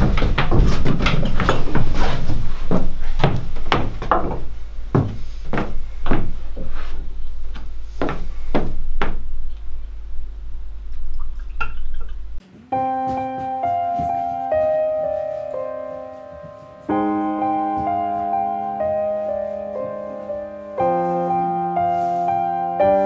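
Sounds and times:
low steady hum: 2.4s - 12.6s
soft piano music: 9.4s - 23.0s.

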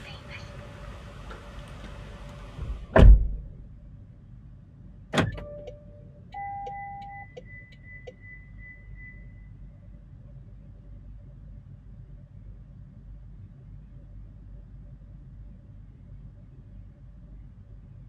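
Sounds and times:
car doors slamming: 2.6s - 3.6s, 5.1s - 5.8s
electronic beep: 6.4s - 9.6s.

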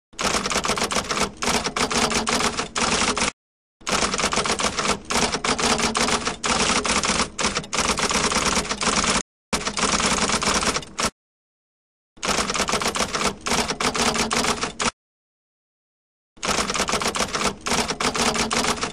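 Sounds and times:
typewriter keys clacking: 0.2s - 3.3s, 3.9s - 11.1s, 16.5s - 18.9s.

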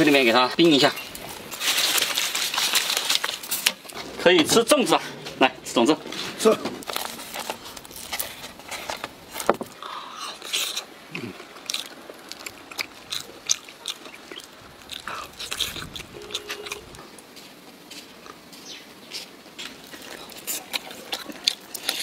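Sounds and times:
leaf wrapper peeling: 1.2s - 4.0s, 10.4s - 17.0s
chewing and mouth clicks: 6.8s - 17.2s, 19.1s - 22.0s
person humming: 16.2s - 17.0s.

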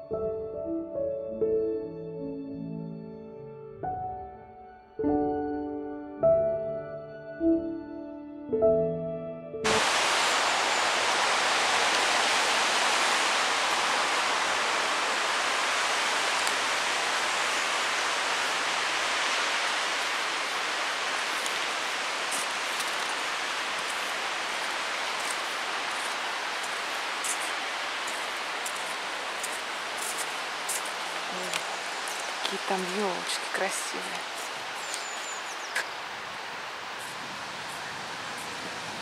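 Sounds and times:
road traffic hiss: 9.7s - 39.0s.

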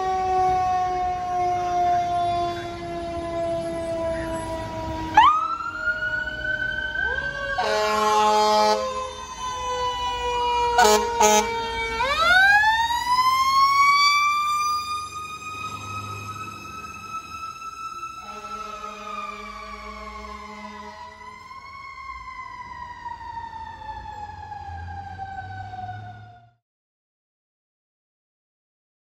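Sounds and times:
falling siren tone: 0.0s - 26.6s
air horn blasts: 7.6s - 9.0s, 10.7s - 11.6s, 18.2s - 21.1s.

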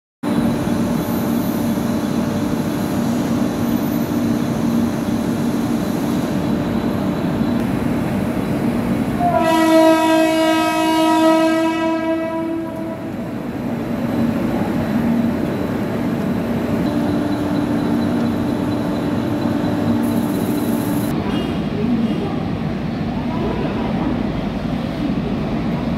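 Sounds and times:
electric trains humming: 0.2s - 25.9s
train horn long note: 9.2s - 13.2s.

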